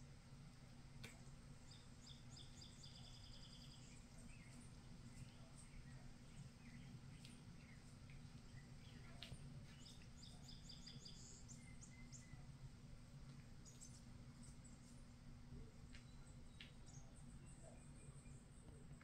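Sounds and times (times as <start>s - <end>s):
faint high chirps: 1.1s - 12.6s, 15.6s - 19.0s.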